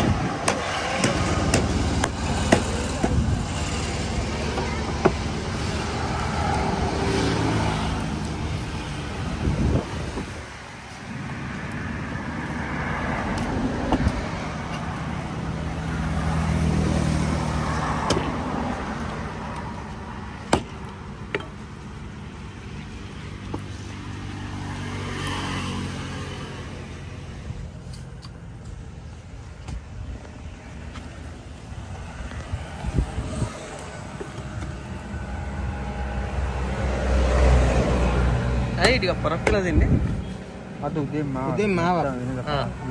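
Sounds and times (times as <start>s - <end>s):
road traffic passing: 0.0s - 42.9s.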